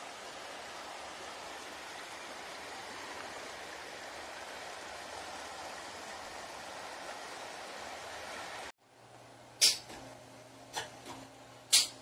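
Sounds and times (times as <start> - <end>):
creek water rushing: 0.0 - 8.7.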